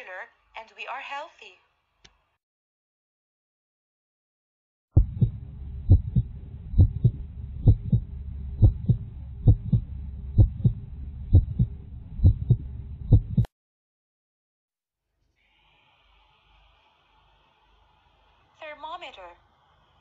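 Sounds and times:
heartbeat through stethoscope: 5.0 - 13.5
low steady rumble: 5.0 - 13.5.

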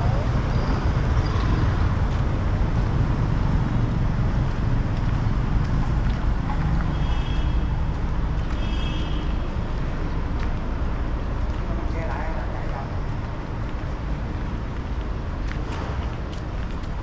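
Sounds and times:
passing motor vehicles: 0.0 - 17.0.

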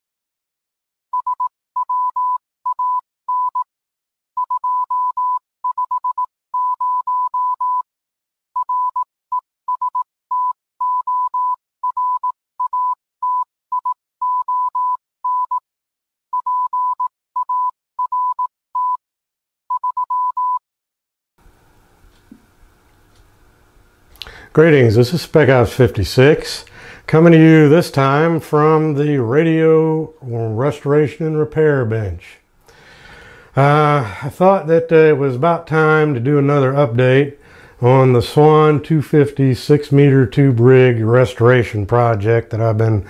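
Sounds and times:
morse code tone: 1.2 - 3.6, 4.4 - 7.8, 8.6 - 15.6, 16.3 - 19.0, 19.7 - 20.6
faint room hum: 21.4 - 43.0.

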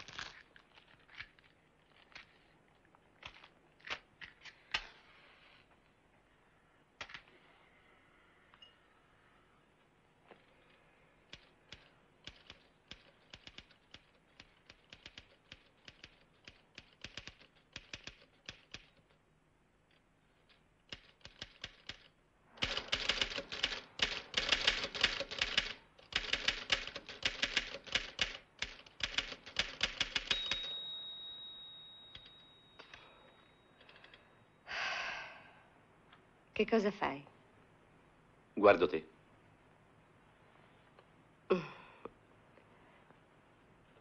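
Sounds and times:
typewriter keys striking: 11.3 - 19.1, 20.9 - 30.7.

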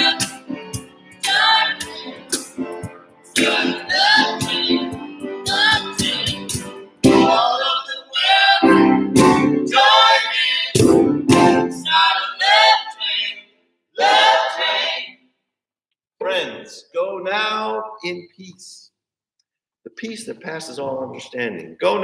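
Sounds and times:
instrumental accompaniment: 0.0 - 7.8, 8.6 - 12.0
person singing: 1.2 - 12.5.

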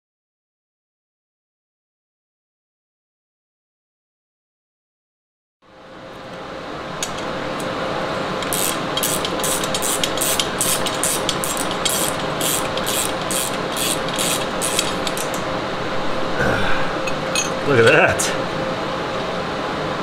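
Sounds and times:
steady hum: 5.7 - 20.0
ratchet wrench clicking: 8.4 - 15.4.

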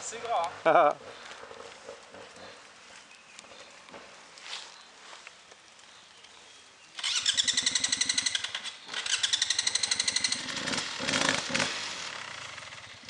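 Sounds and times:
motorcycle engine chugging and revving: 7.0 - 13.0.

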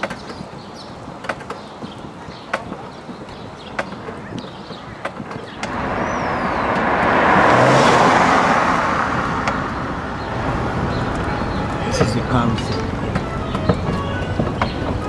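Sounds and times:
car passing by: 5.6 - 13.1.

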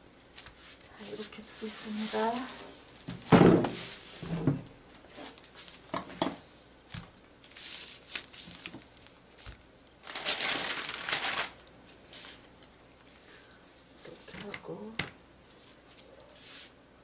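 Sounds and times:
paper rustling against fabric: 7.4 - 12.4.

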